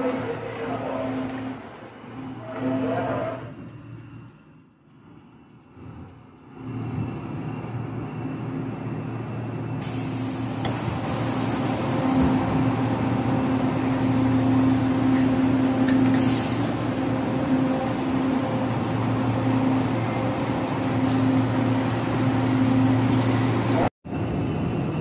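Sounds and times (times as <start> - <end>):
train running rumble: 6.6 - 25.0.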